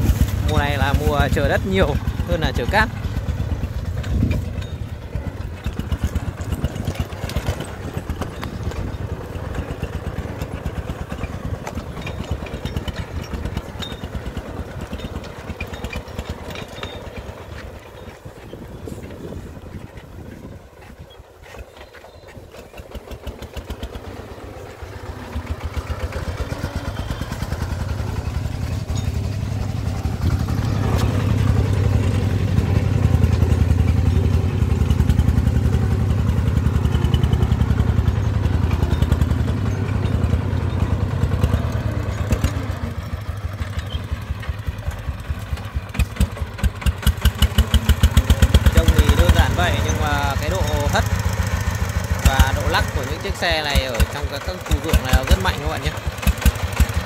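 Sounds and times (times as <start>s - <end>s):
diesel engine chugging: 0.0s - 57.0s.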